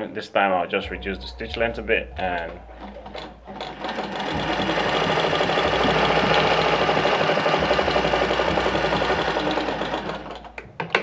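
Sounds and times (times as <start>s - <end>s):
treadle sewing machine stitching: 2.2s - 10.6s.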